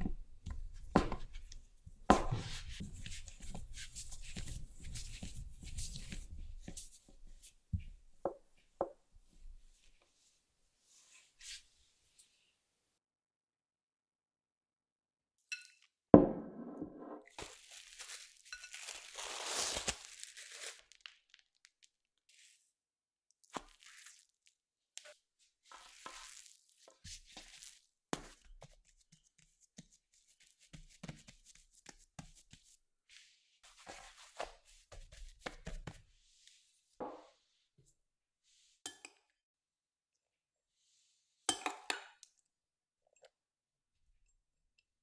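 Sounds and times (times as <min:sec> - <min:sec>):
soft pats on dough: 0:00.0 - 0:10.1, 0:26.0 - 0:38.0
dough thud on counter: 0:16.2 - 0:17.2
dough rustling: 0:17.3 - 0:21.0, 0:23.5 - 0:24.4, 0:25.6 - 0:36.6.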